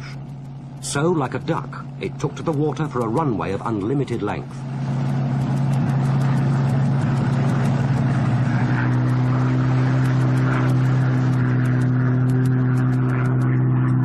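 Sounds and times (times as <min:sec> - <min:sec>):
aero engine running at full power: 0:00.0 - 0:14.0.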